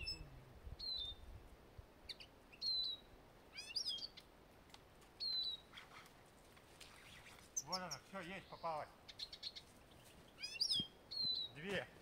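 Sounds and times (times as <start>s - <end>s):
bird twittering: 0.0s - 1.3s, 2.1s - 4.3s, 5.2s - 5.7s, 7.0s - 11.7s
finches chirping: 2.1s - 4.3s, 5.2s - 5.8s, 7.0s - 11.7s.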